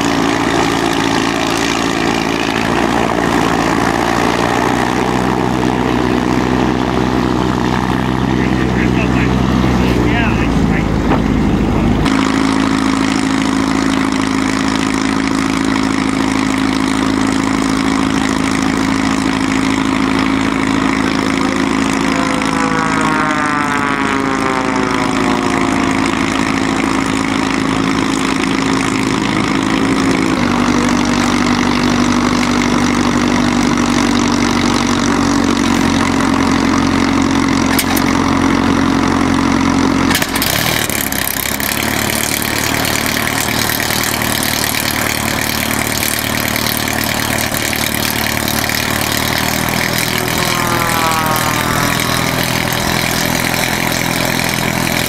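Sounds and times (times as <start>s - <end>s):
piston aircraft engine idling: 0.0s - 55.0s
passing engine sweeping down: 18.4s - 38.6s, 48.2s - 55.0s.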